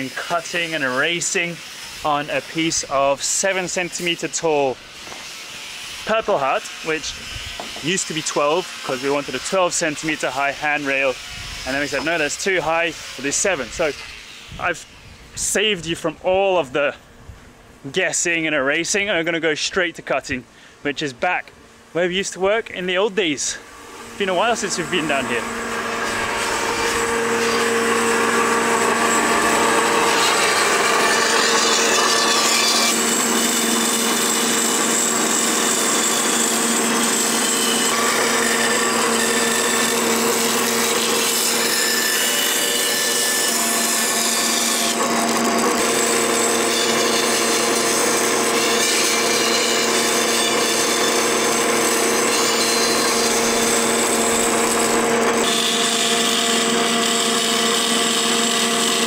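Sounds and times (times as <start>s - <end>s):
band saw cutting wood: 0.0s - 15.6s, 22.9s - 59.0s.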